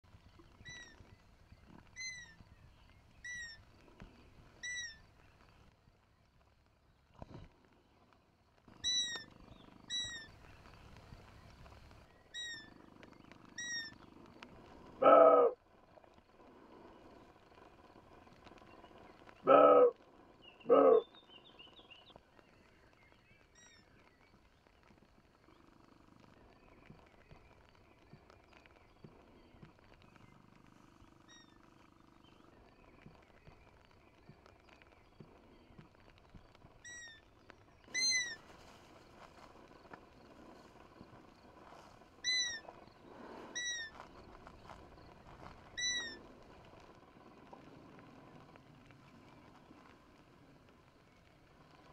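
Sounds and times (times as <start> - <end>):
faint bird chirps: 0.1 - 8.0, 8.7 - 51.9
deer barking: 15.0 - 15.6, 19.5 - 20.0, 20.7 - 21.1.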